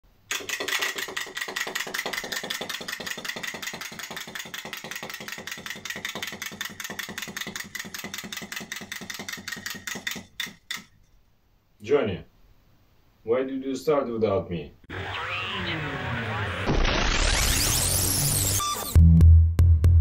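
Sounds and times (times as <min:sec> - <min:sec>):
clockwork toy clicking: 0:00.3 - 0:10.9.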